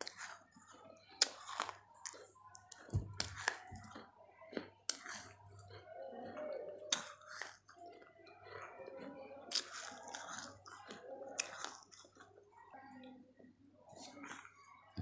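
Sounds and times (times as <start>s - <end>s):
gritty chewing: 0.0s - 12.5s
crunching bites of clay: 1.2s - 5.4s.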